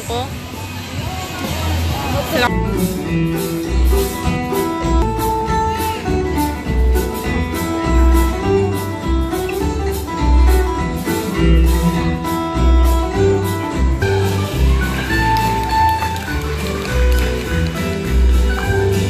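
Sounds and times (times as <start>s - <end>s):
instrumental show music: 0.0s - 19.0s.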